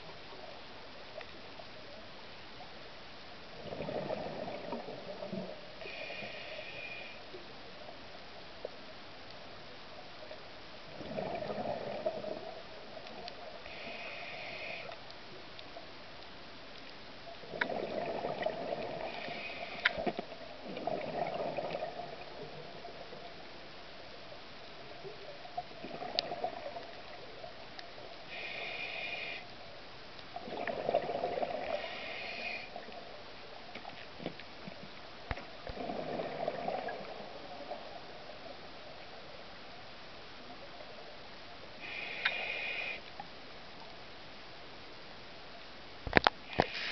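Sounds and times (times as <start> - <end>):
exhaled bubbles gurgling: 3.5 - 6.0, 10.9 - 14.6, 17.4 - 23.3, 25.1 - 27.6, 30.4 - 33.2, 35.6 - 38.6
hissing inhalations through regulator: 13.6 - 15.0, 17.6 - 20.2, 28.3 - 29.5, 30.6 - 32.9, 41.8 - 43.1, 46.5 - 46.9.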